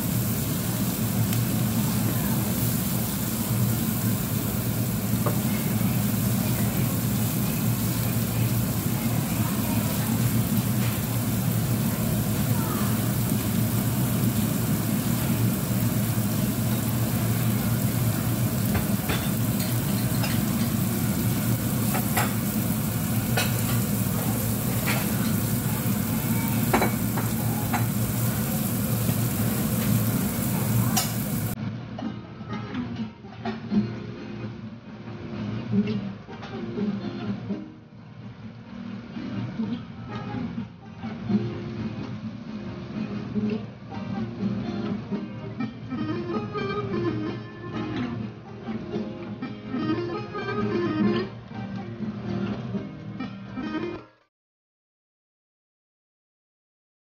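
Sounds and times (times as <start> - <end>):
food sizzling in frying pan: 0.0 - 31.6.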